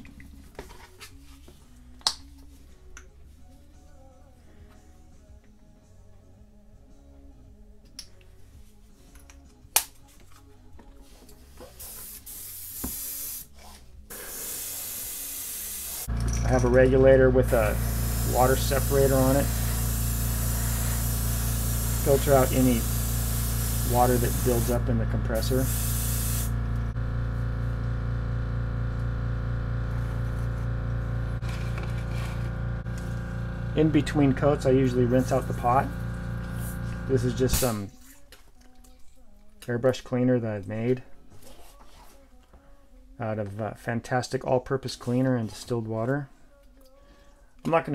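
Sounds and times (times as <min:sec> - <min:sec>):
airbrush hissing: 0:11.7 - 0:13.5, 0:14.1 - 0:16.1, 0:17.4 - 0:26.6, 0:31.4 - 0:37.8
air compressor humming: 0:14.1 - 0:37.9.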